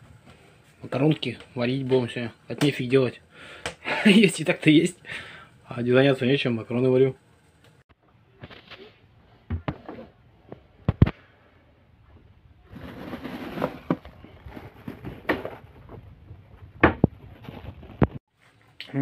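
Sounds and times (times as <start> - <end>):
plastic bags rustling: 12.6 - 16.1.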